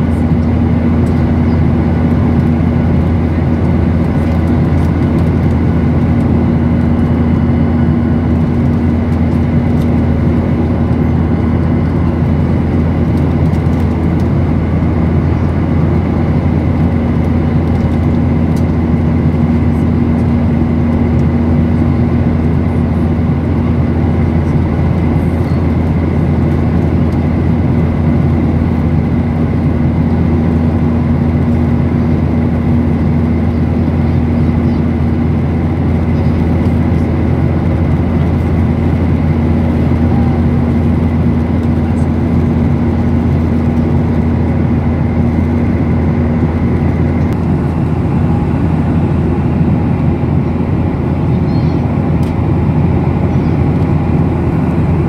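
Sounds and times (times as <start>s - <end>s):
airplane cabin engine drone: 0.0s - 55.0s
high engine whine: 0.0s - 55.0s.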